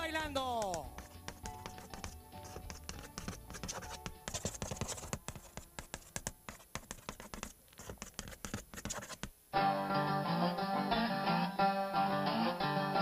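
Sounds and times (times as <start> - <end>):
faint music: 0.0 - 7.1
chalk scratching on a chalkboard: 0.6 - 9.3.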